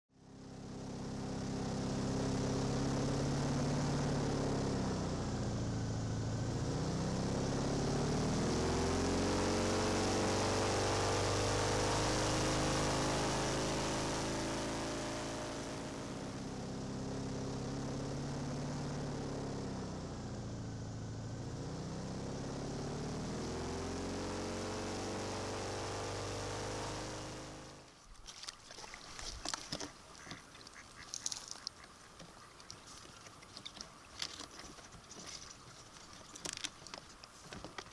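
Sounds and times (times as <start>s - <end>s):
airboat engine and propeller: 0.1s - 37.9s
faint clicks and rustles: 27.9s - 37.9s.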